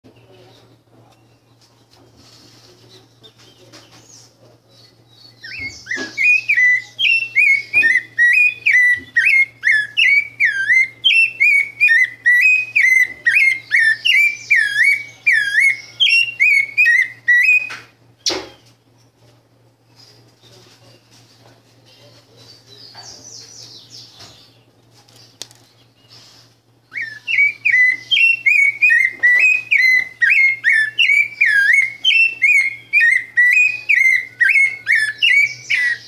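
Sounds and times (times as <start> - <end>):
thrush singing whistled notes: 5.2 - 18.6, 26.8 - 36.0.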